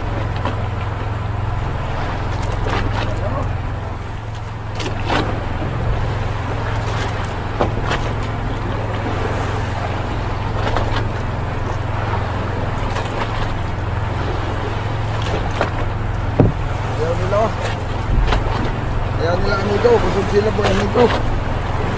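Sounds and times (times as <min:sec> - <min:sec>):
water wash: 0:00.0 - 0:21.9
wind noise: 0:16.2 - 0:16.9.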